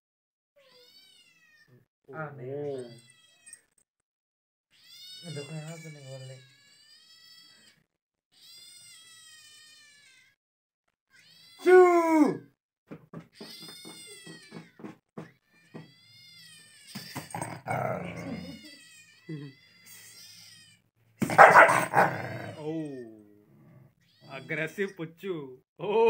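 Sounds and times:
recorded cat meows from phone: 0.6 - 1.8, 4.7 - 10.4, 11.1 - 12.2.

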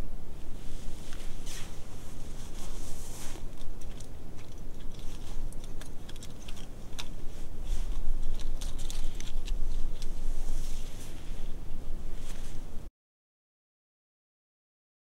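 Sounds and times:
small clicks and rustles: 2.3 - 11.5.

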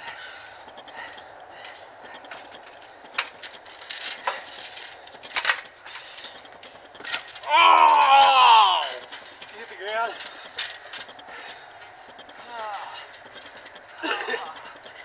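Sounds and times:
trampoline springs clinking and creaking: 0.0 - 15.0.

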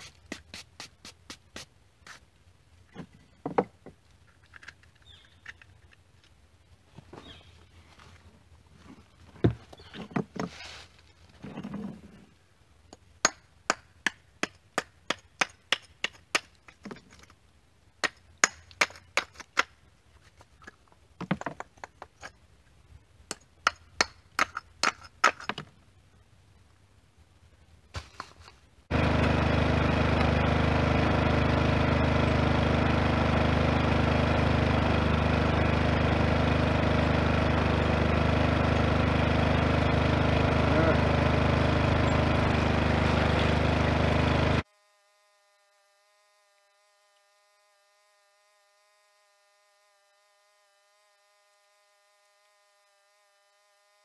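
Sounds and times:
small engine running: 4.5 - 5.6, 28.9 - 54.0
bricks knocking and clinking: 20.6 - 22.4.

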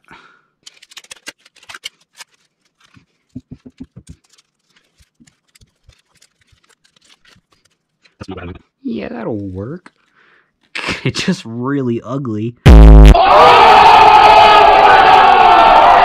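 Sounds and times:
plastic straws crinkling: 0.0 - 8.2.

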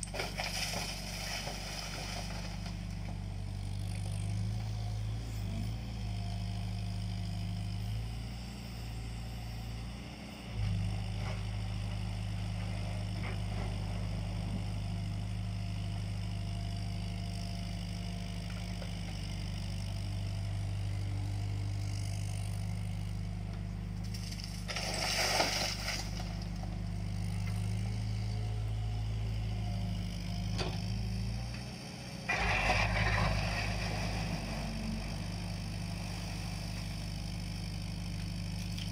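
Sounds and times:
excavator diesel engine running: 0.0 - 38.9
bucket scraping through soil: 24.6 - 26.2, 32.3 - 34.4.

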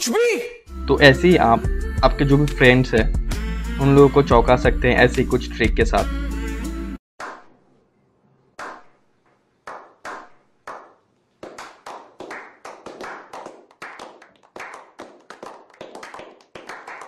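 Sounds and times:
group clapping hands: 8.6 - 8.9, 9.6 - 17.0.

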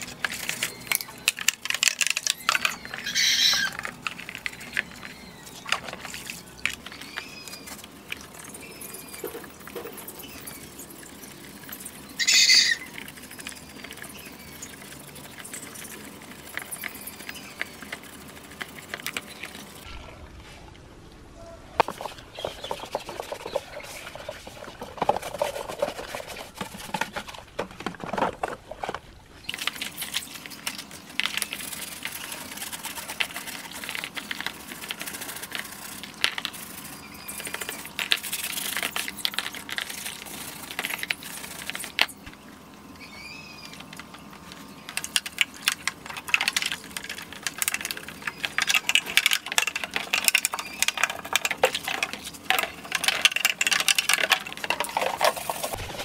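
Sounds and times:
plastic parts scrubbed: 21.8 - 42.2, 43.7 - 56.0.

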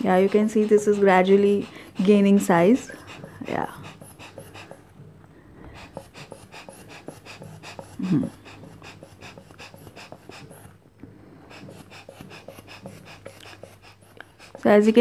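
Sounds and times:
hand pump bulb puffing air: 5.7 - 10.8, 11.4 - 14.7.

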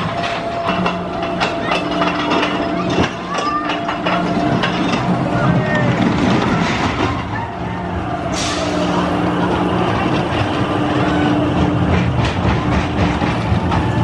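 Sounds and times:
roller coaster wheels rumbling: 0.0 - 14.0.

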